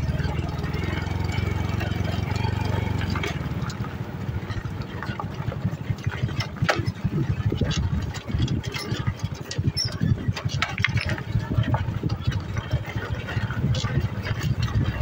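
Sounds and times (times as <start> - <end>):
knocks and rattles: 0.0 - 15.0
motorcycle engine running: 0.0 - 15.0.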